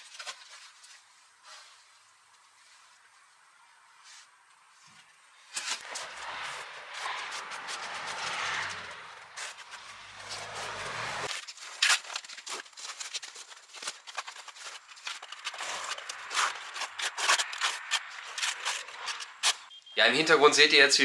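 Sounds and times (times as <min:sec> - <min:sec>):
tool scraping mortar on stone: 0:05.6 - 0:19.7.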